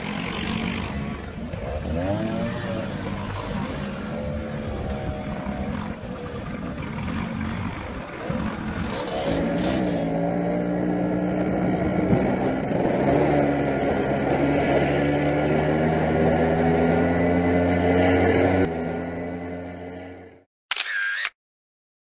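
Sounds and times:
scooter engines running: 0.0 - 16.4.

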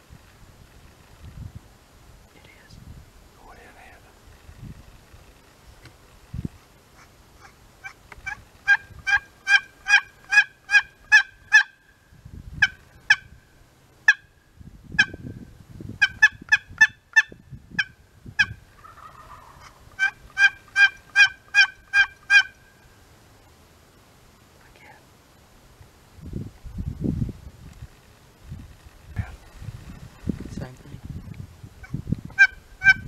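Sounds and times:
turkey yelping: 7.0 - 11.8, 16.0 - 22.7, 31.8 - 33.0.

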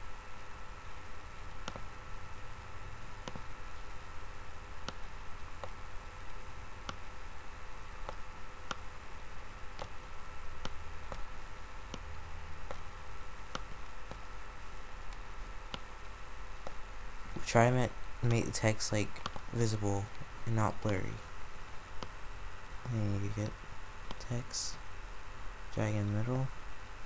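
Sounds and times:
microphone hiss and hum: 0.0 - 27.0
computer mouse clicks: 1.5 - 1.9, 3.2 - 3.9, 4.8 - 5.8, 6.8 - 7.0, 8.0 - 8.8, 9.7 - 10.0, 10.6 - 11.3, 15.1 - 15.9, 19.1 - 19.5.

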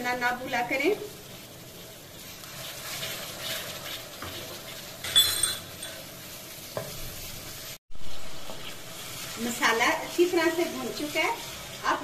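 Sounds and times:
spices sizzling in oil: 0.0 - 12.0
wooden spatula scraping pan: 0.8 - 7.5
spatula clinking on pan: 5.0 - 6.1.

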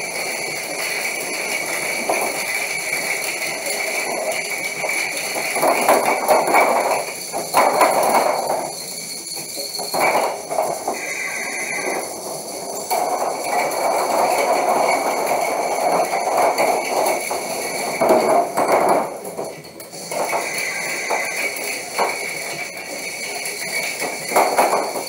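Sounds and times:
plastic parts clattering: 0.0 - 8.8, 9.5 - 25.0
small electric motors whining: 10.9 - 12.2, 20.2 - 22.4.

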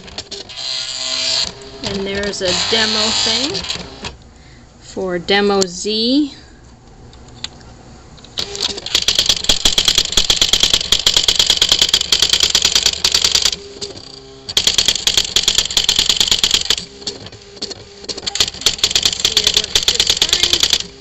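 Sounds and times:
electronic typewriter rattling: 0.0 - 4.2, 8.4 - 21.0.

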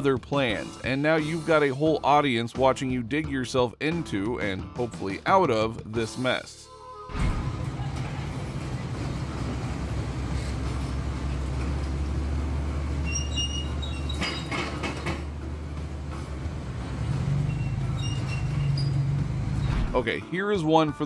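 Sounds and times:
construction machinery engines rumbling: 7.1 - 20.0
high squeal: 12.9 - 14.7, 17.4 - 19.9.

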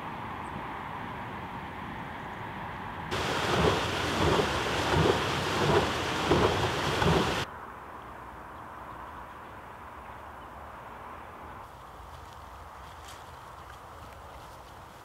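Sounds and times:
water gushing from a pipe: 3.1 - 7.5.

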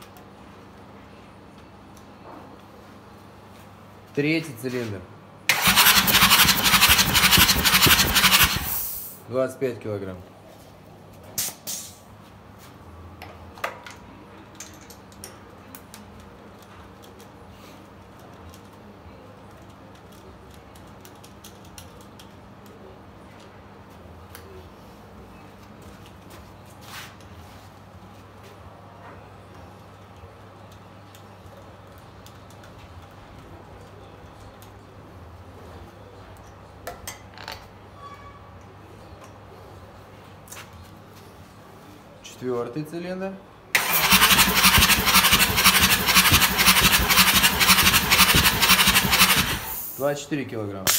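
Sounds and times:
short air hisses: 5.5 - 9.2, 43.8 - 50.1.

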